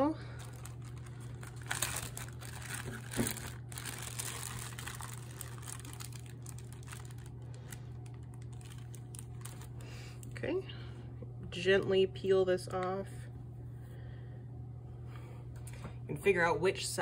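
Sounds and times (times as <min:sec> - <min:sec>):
plastic bag crinkling: 0:00.0 - 0:10.4
steady low hum: 0:00.0 - 0:17.0.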